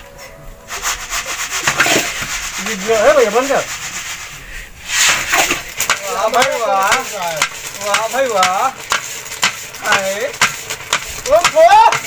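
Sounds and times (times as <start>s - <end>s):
sand and chickpeas scraping: 0.6s - 12.0s.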